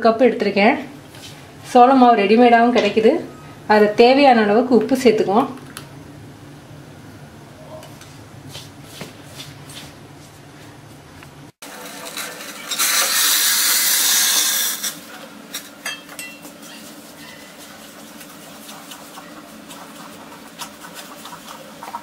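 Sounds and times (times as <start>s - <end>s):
hot water pouring hiss: 12.7s - 14.9s
stirring wet flour: 16.2s - 22.0s.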